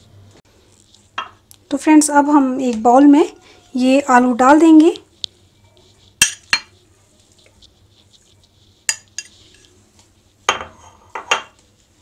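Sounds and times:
glass bowls clinking: 6.2 - 6.7
metal spoon scraping glass bowl: 8.8 - 9.7.

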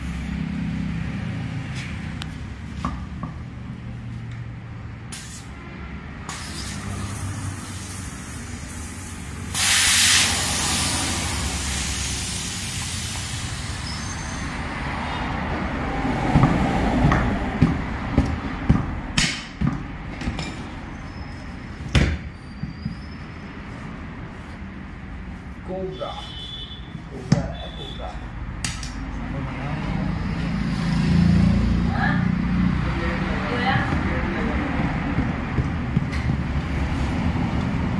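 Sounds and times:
air hissing from tyre valve: 5.1 - 5.6, 6.2 - 14.8.

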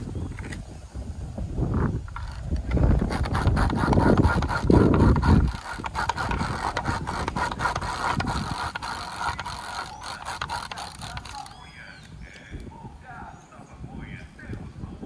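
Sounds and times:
kite line clicking and rubbing: 0.0 - 0.7, 1.5 - 12.8.

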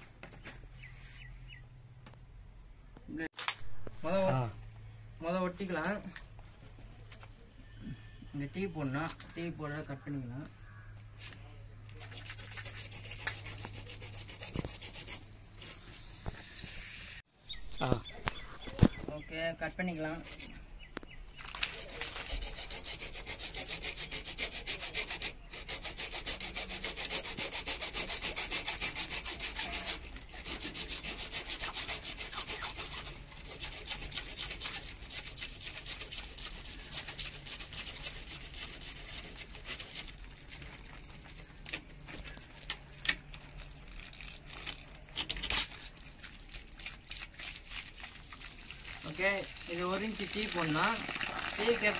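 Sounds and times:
hacksaw sawing plastic pipe: 21.6 - 41.8.

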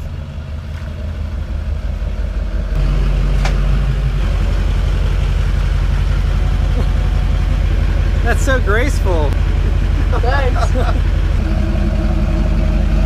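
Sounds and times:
diesel truck engine rumbling: 0.0 - 13.0.

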